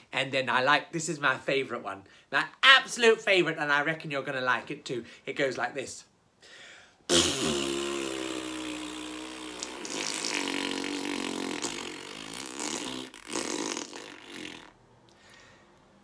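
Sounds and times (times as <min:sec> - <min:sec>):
fart noise blown through lips: 0:07.1 - 0:14.8.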